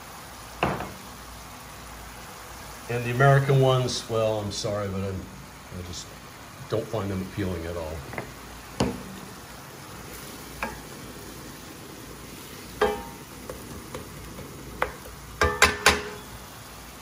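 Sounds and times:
vegetables sizzling in a frying pan: 0.0s - 17.0s
spoon knocking against pan: 8.1s - 9.2s, 10.6s - 10.8s, 12.8s - 14.1s, 14.8s - 16.2s
wooden spoon stirring: 12.2s - 15.7s.

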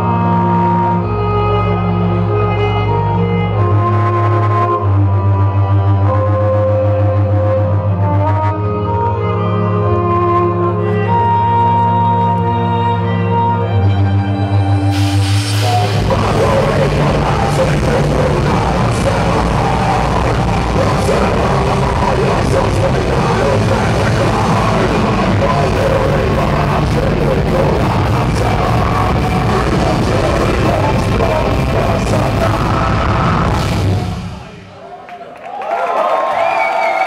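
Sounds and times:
bass guitar: 0.0s - 34.7s
distorted electric guitars: 12.1s - 34.8s
drums and cymbal crashes: 14.9s - 21.3s, 27.8s - 34.7s
singer shouting vocals: 15.6s - 34.9s.

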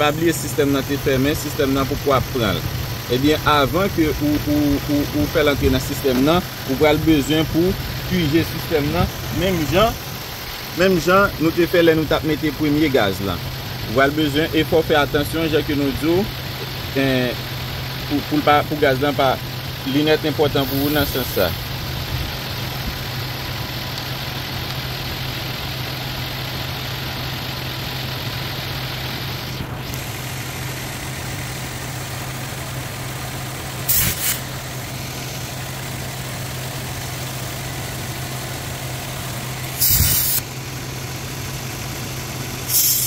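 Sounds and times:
car engine idling: 0.0s - 43.0s
short sharp refrigerant hisses: 20.6s - 21.6s, 33.8s - 34.6s, 39.6s - 40.4s, 42.6s - 43.0s.

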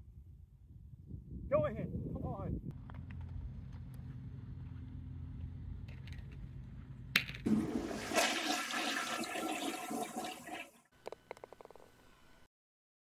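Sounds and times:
toilet flushing: 7.5s - 10.8s.

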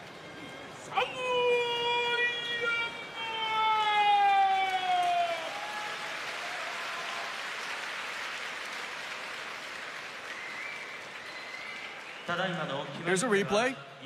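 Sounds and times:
crowd applauding: 3.7s - 13.4s.

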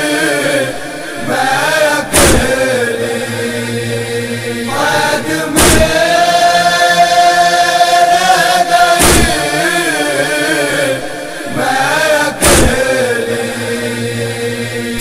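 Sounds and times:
voices chanting: 0.0s - 15.0s
deep echoing thumps: 0.8s - 6.5s, 9.0s - 9.5s, 12.3s - 13.1s.

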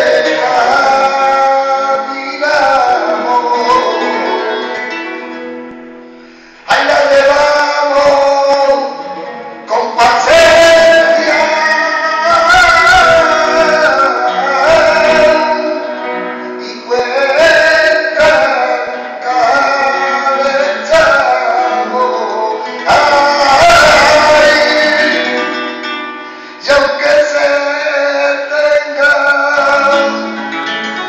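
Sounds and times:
man singing: 0.0s - 5.4s, 6.5s - 31.0s
acoustic guitar: 0.0s - 31.0s.

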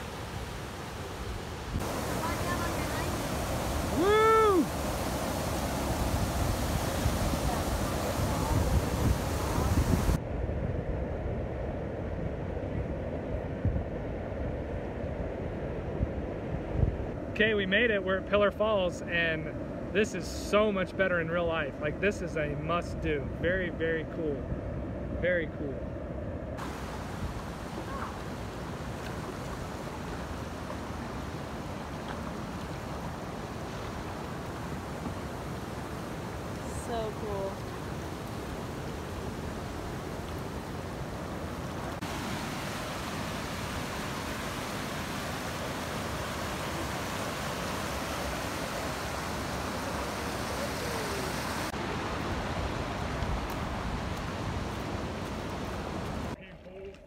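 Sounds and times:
whitewater rushing over rocks: 0.0s - 10.2s, 26.6s - 56.4s.

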